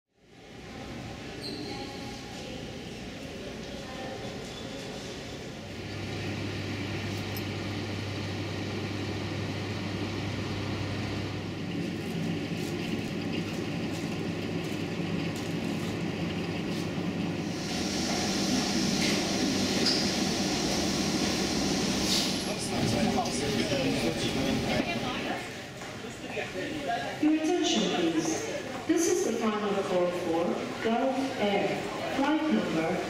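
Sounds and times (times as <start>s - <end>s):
machinery low hum: 5.6s - 25.4s
hissing rush of air: 17.4s - 22.6s.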